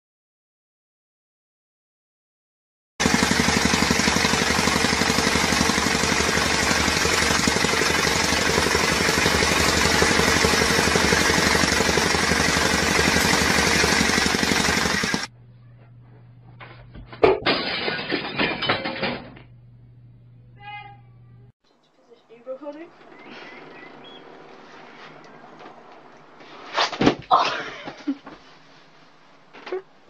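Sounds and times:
tamping rammer pounding: 3.0s - 15.3s
clattering noise: 16.5s - 19.5s
low hum: 18.5s - 26.8s.

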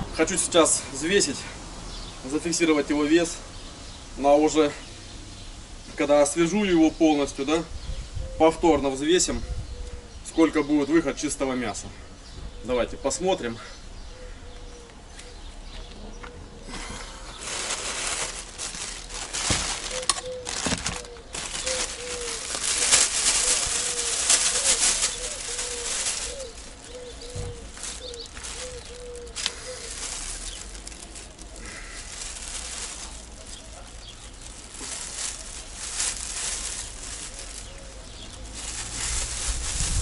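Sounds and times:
plastic bag rustling: 17.3s - 40.0s
rustling and scuffling: 17.3s - 40.0s.

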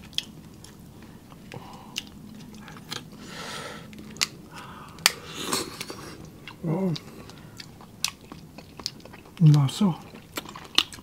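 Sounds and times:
chewing and biting seafood: 3.8s - 11.0s.

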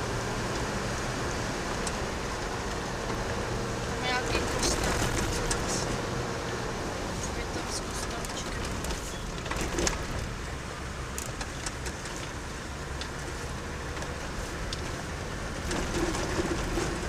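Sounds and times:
car engine and tyre rumble: 0.0s - 17.0s
knocks and rattles: 7.9s - 10.4s, 15.6s - 17.0s.

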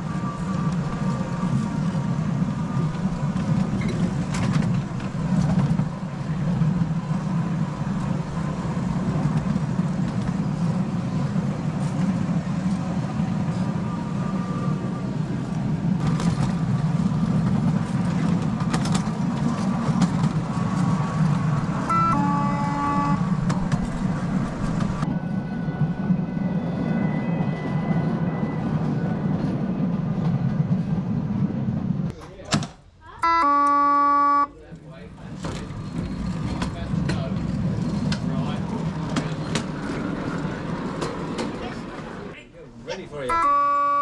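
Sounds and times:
miniature train rumbling: 0.0s - 32.2s, 34.6s - 42.4s
horn toot: 21.9s - 23.5s, 33.2s - 34.5s, 43.3s - 44.0s.

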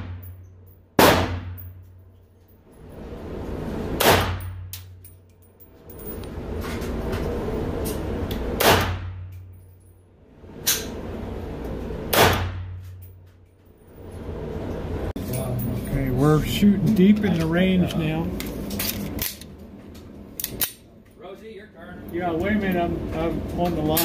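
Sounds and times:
steady low hum: 0.0s - 24.0s
reverberant gunshots: 1.0s - 1.6s, 4.0s - 4.7s, 8.6s - 9.3s, 12.1s - 12.8s.

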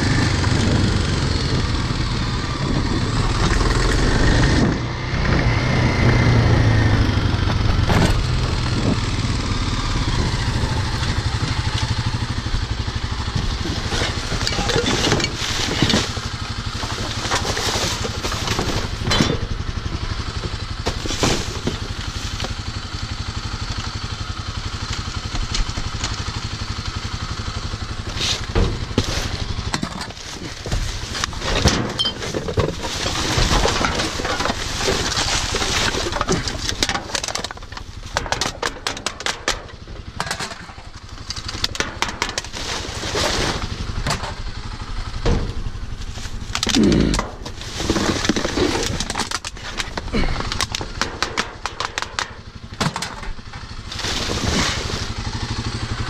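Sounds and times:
motorcycle engine idling: 0.0s - 5.0s, 6.2s - 56.0s
trash bags rustling and clattering: 13.2s - 22.8s, 27.9s - 56.0s.

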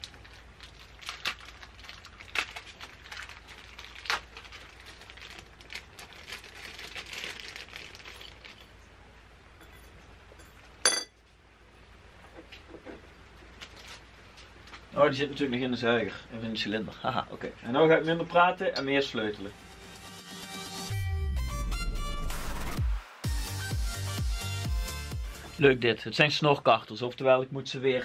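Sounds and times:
rustling: 0.0s - 8.9s, 12.2s - 15.0s
sharp metallic clink: 10.4s - 11.2s.

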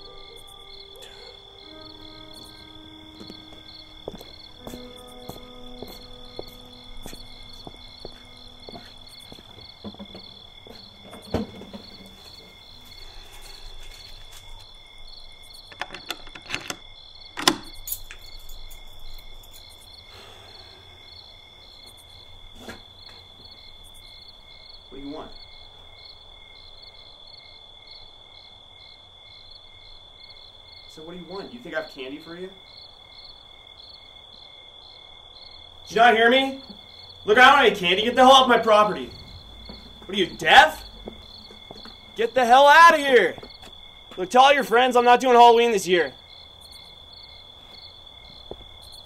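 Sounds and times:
crickets chirping: 0.0s - 49.0s
sharp knocks: 39.1s - 42.2s.

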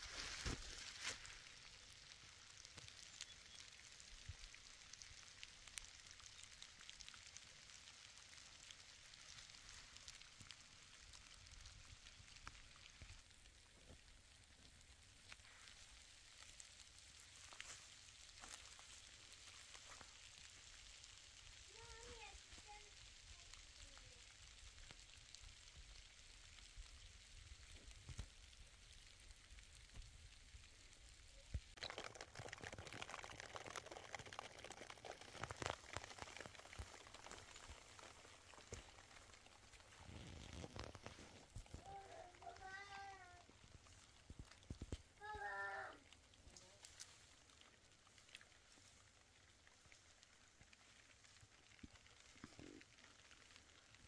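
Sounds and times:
faint rain: 0.0s - 54.0s.

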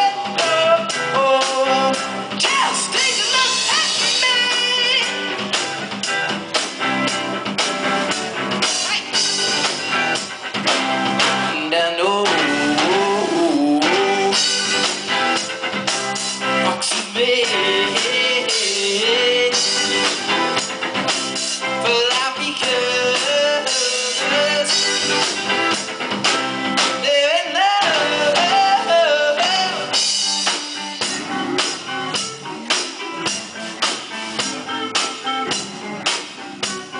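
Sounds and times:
man singing: 0.0s - 5.2s, 11.5s - 14.8s, 16.6s - 20.4s, 21.7s - 25.7s, 26.8s - 30.2s
rock band playing: 0.0s - 36.9s.

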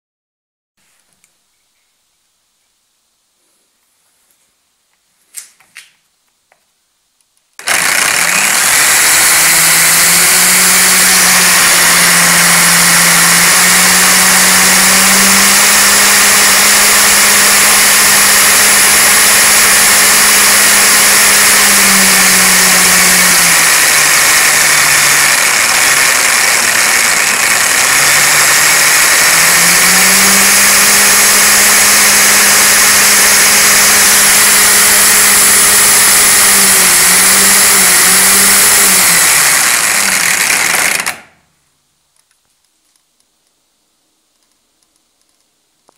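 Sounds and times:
electric motor whirring: 7.6s - 41.3s
clicks: 44.3s - 45.9s.

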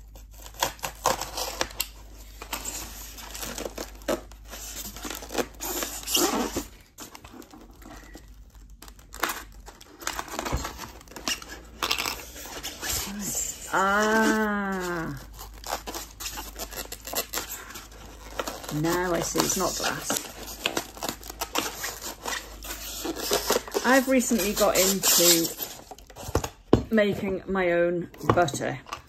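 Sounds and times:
parcel packaging tearing and crinkling: 0.0s - 26.7s.

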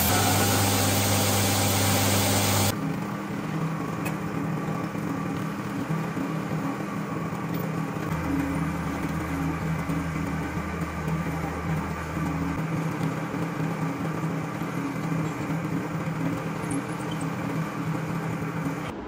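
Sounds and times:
drill press boring wood: 0.0s - 2.7s.

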